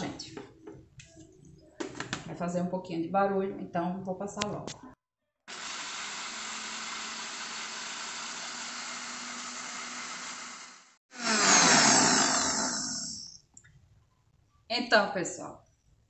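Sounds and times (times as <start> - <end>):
electric blender grinding nuts: 5.5 - 13.4.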